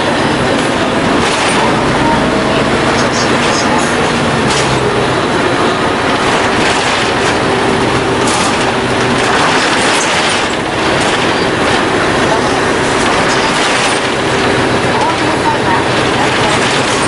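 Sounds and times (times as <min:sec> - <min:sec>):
bus diesel engine running: 0:00.0 - 0:17.0
road and body noise: 0:00.0 - 0:17.0.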